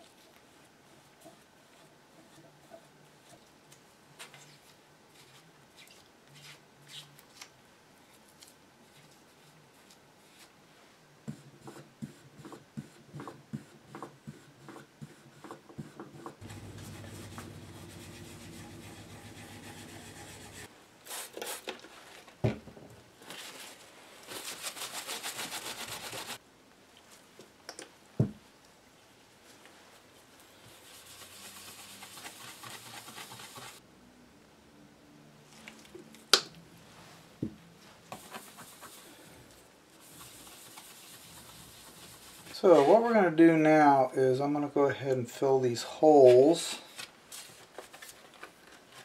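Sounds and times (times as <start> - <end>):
steady hum: 16.4 - 20.7
pad rubbing on wooden panel: 16.6 - 20.7.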